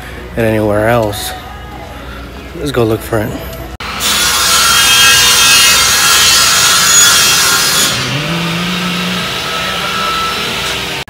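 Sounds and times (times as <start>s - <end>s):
harsh sawing scrape: 4.0s - 11.0s.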